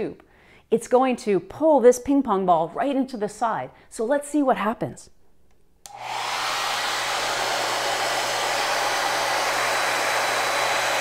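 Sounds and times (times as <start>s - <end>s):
hair dryer switch click: 5.8s - 6.7s
hair dryer blowing: 5.9s - 11.0s.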